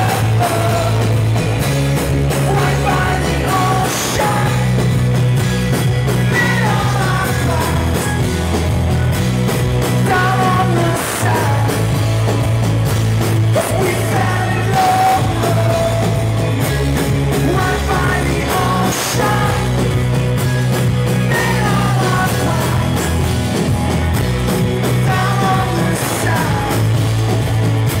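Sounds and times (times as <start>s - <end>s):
drums: 0.0s - 28.0s
guitar: 0.0s - 28.0s
held bass notes: 0.0s - 28.0s
person singing: 2.4s - 4.9s, 6.2s - 8.5s, 9.9s - 11.9s, 13.6s - 16.4s, 17.4s - 19.9s, 21.2s - 23.2s, 24.8s - 27.0s.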